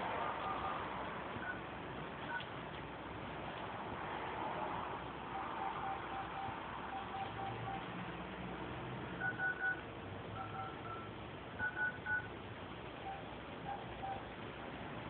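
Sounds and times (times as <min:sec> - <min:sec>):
faint lower beeps: 0:00.4 - 0:01.6, 0:05.3 - 0:07.9, 0:09.2 - 0:09.8, 0:10.4 - 0:12.3, 0:13.0 - 0:14.3
short high beeps: 0:05.6 - 0:07.8.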